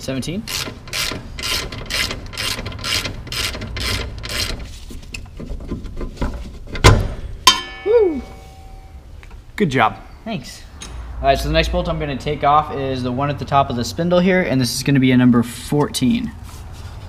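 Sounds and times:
ratchet wrench clicking: 0.4s - 4.6s
sharp metallic knocks: 6.8s - 7.9s.

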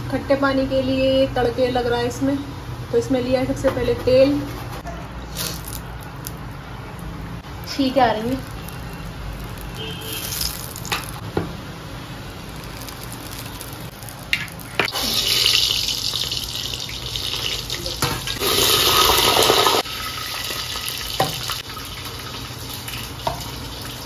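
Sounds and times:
tempering sizzling in hot oil: 7.4s - 11.4s, 12.0s - 24.0s.

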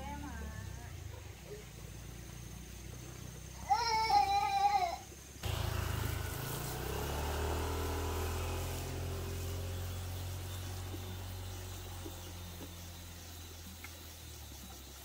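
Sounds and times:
motor humming: 5.4s - 14.2s.

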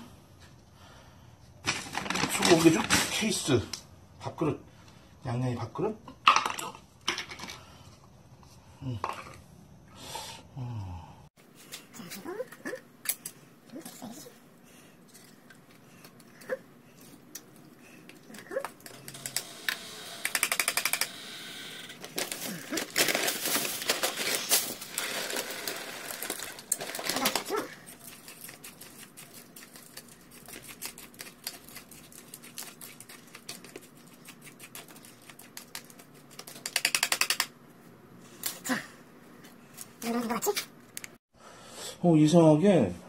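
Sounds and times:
can opener clicking and scraping: 18.1s - 21.2s.

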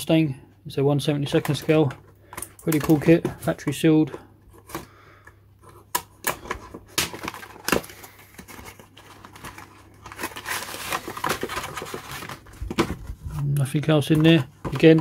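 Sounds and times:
plastic bag crinkling: 6.8s - 15.0s.

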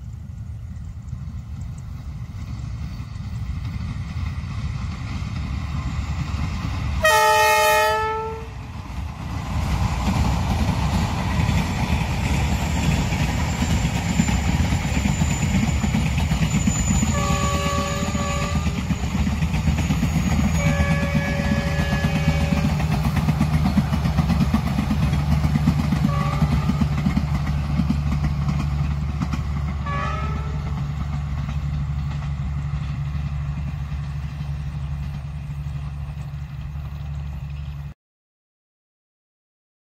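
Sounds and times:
train engine and wheels rumbling: 0.0s - 38.0s
locomotive horn blast: 7.0s - 8.6s, 17.1s - 18.8s, 20.6s - 22.8s, 26.0s - 26.8s, 29.8s - 30.7s.

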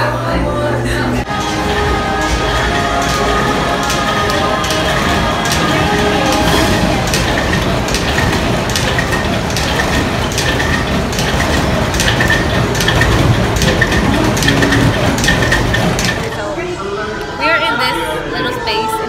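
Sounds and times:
springs clacking and slapping: 1.3s - 16.5s.

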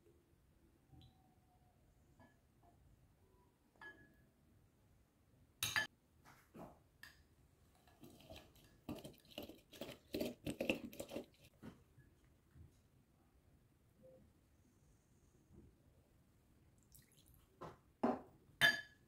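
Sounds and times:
lemon squeezed on citrus juicer: 8.0s - 11.5s.

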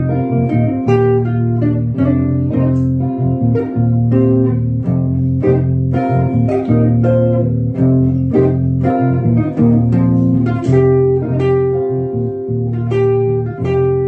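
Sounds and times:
electric guitar playing jazz: 0.0s - 14.0s
sustained low bass notes: 0.0s - 14.0s.

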